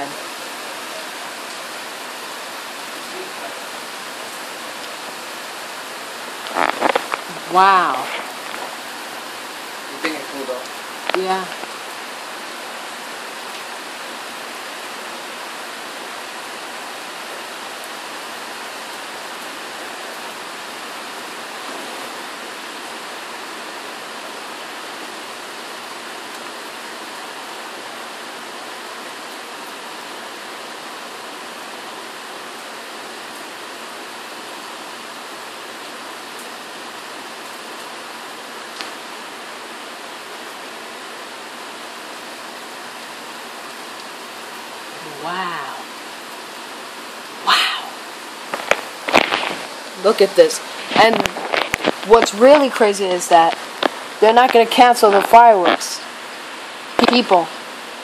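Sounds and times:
heavy rain hiss: 0.0s - 58.0s.

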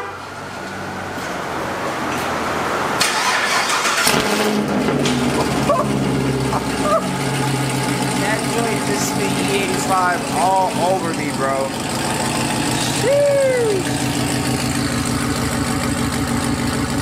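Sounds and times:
car engine starting and idling: 0.0s - 17.0s.

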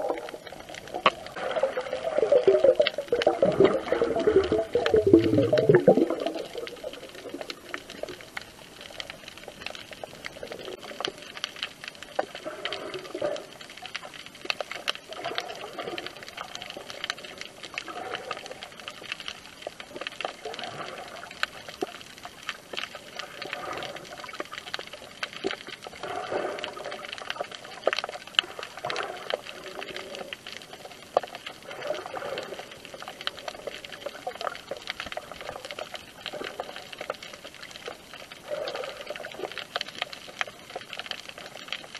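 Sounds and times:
dull underwater rushing: 0.0s - 8.8s
muffled underwater hiss: 0.0s - 41.9s
small crackling clicks: 0.0s - 41.9s.

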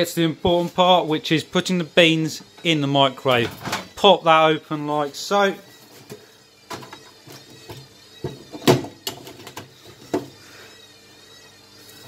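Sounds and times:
knocks and clicks on microwave oven: 7.6s - 10.4s.

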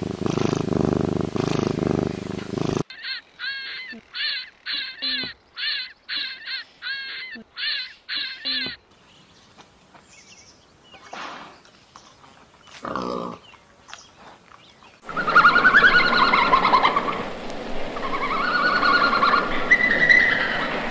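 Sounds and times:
wild boar grunt: 0.0s - 2.9s, 12.7s - 13.5s
marten chirping: 1.4s - 12.8s
giant panda high-pitched calls: 2.9s - 8.8s.

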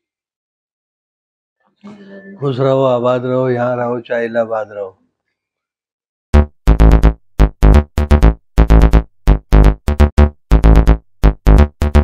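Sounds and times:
electronic music with synth chords: 6.4s - 12.0s.

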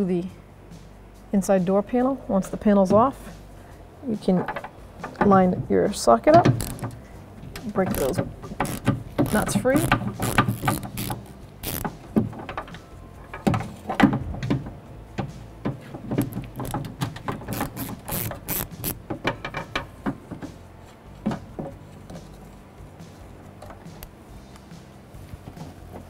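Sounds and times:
hand ratchet clicking: 6.4s - 7.0s, 7.6s - 12.8s, 16.2s - 19.9s.

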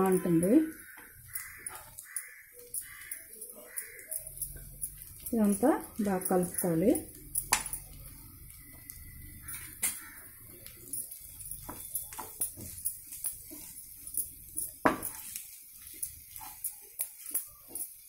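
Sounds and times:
spatula scraping a frying pan: 11.1s - 18.0s.

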